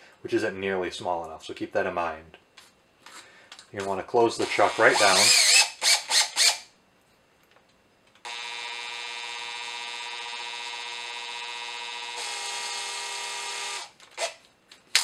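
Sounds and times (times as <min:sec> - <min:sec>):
electric drill motor whining: 0:04.4 - 0:06.7, 0:08.2 - 0:14.4.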